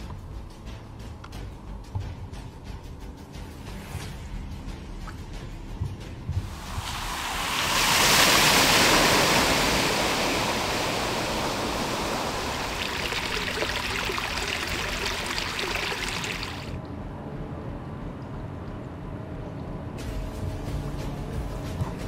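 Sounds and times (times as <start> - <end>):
floodwater rushing and splashing: 6.5 - 16.8.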